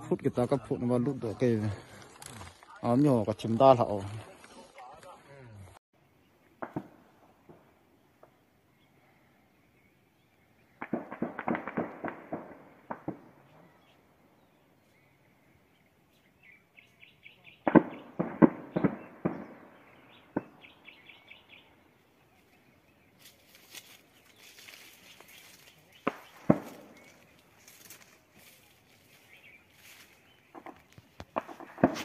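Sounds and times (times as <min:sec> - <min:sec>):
distant gunfire echoing: 0:06.6 - 0:08.4, 0:10.7 - 0:14.0, 0:17.6 - 0:21.1, 0:26.0 - 0:27.4, 0:30.5 - 0:32.0.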